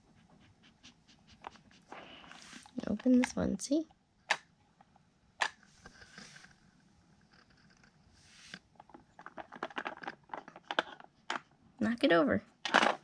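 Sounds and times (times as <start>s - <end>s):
dog sniffing: 0.0s - 2.7s
plastic pieces clicking: 8.9s - 11.5s, 12.6s - 13.0s.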